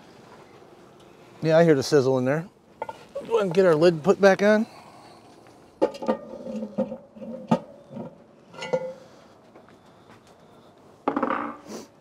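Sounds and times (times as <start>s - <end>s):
metal lid clanking: 5.8s - 9.0s.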